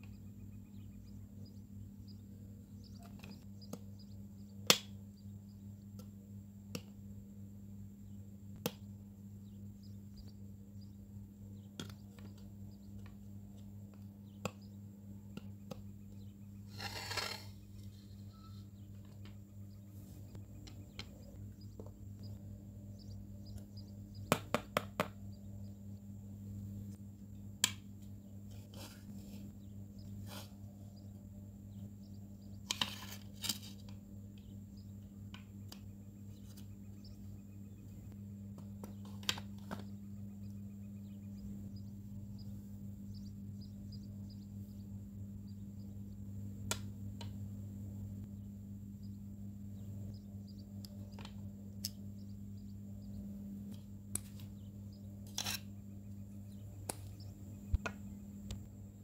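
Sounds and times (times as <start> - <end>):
steady low hum: 0.0 - 59.0
brief scraping rustle: 16.7 - 17.9.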